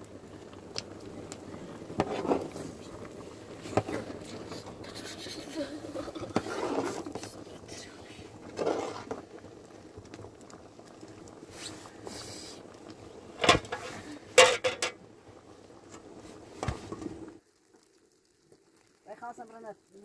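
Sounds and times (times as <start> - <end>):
water bubbling in pot: 0.0 - 20.0
metal clanks of utensil and lid: 13.4 - 15.0.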